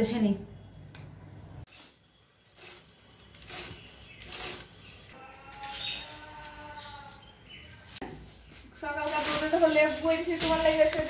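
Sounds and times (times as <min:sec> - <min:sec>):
leaves rustling and snapping: 0:07.9 - 0:11.0.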